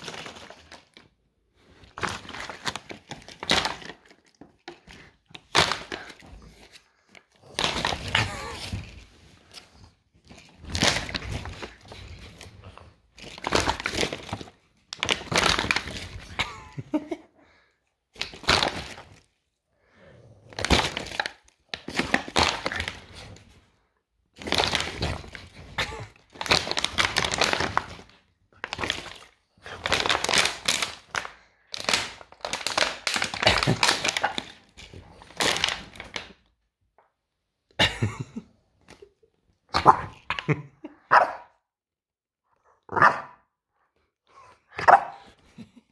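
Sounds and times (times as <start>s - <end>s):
plastic bottle crunching: 0.0s - 16.9s, 18.2s - 19.3s, 20.3s - 23.6s, 24.4s - 36.4s.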